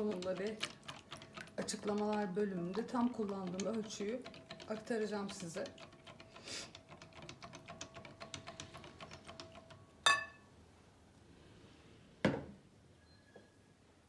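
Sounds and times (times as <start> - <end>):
whisk beating in glass bowl: 0.0 - 9.8.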